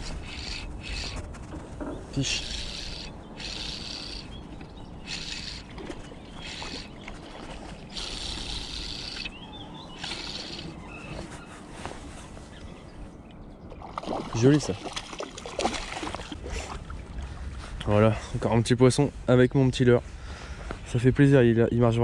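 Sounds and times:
fishing reel spinning: 0.0s - 1.2s, 2.3s - 4.3s, 5.0s - 5.7s, 6.4s - 6.9s, 7.9s - 9.3s, 10.0s - 10.8s.

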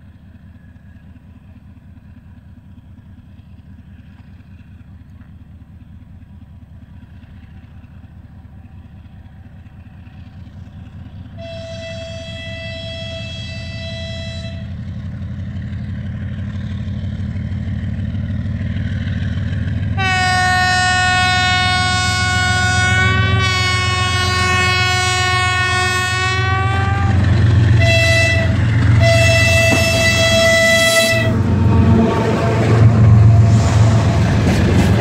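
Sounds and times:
locomotive engine rumble: 0.0s - 35.0s
train horn blasts: 11.3s - 14.9s, 20.0s - 34.6s.

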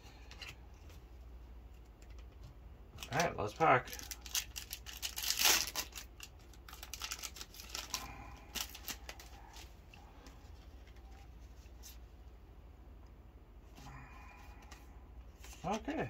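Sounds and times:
foil pack crinkling and tearing: 3.0s - 9.7s.

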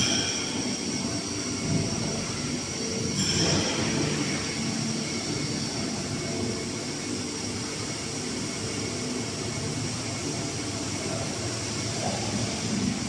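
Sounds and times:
factory machinery hum: 0.0s - 13.0s
ventilation noise: 0.0s - 13.0s.

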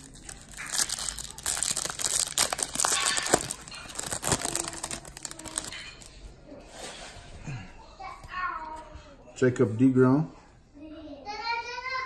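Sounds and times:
foil wrapper crinkling: 0.0s - 6.2s.

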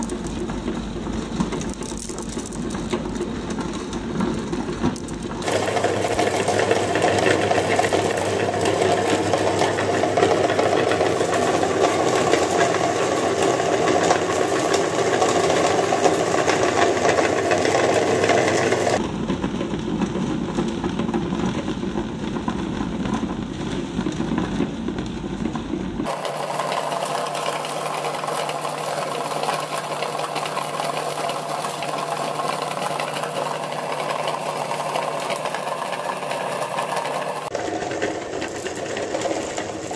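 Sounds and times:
electric meat grinder rattling: 0.0s - 19.0s, 26.0s - 39.9s.

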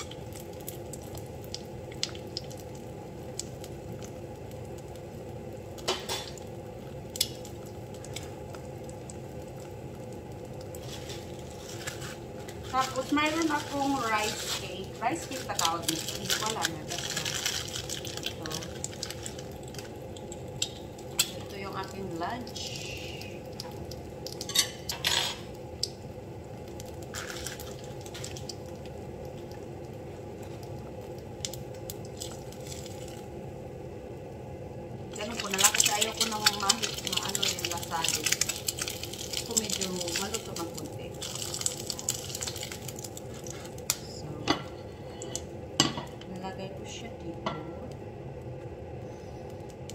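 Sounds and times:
egg sizzling in pan: 0.0s - 49.9s
steady low hum: 0.0s - 49.9s
plastic bag rustling: 10.8s - 20.0s, 35.2s - 44.2s.

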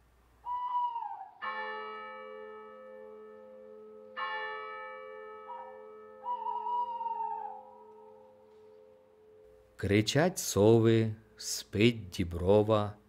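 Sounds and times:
wavering high call: 0.4s - 1.8s, 5.4s - 9.4s.

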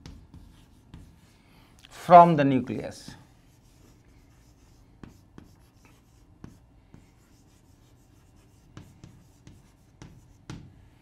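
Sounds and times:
chalk tapping on board: 0.0s - 1.3s, 3.1s - 10.8s
chalk writing on chalkboard: 0.0s - 1.4s, 3.1s - 10.8s.

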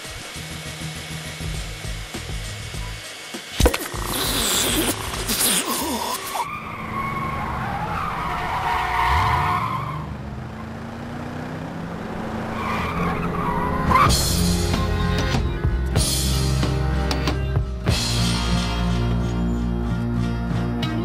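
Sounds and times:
tyres squealing: 3.6s - 10.1s
car engine revving: 6.4s - 20.8s.

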